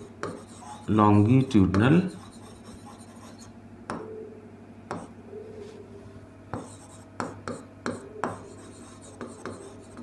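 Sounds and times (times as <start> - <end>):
marker pen writing on whiteboard: 0.0 - 1.0, 1.7 - 3.5, 4.9 - 5.1, 6.5 - 10.0
low steady hum: 0.0 - 10.0.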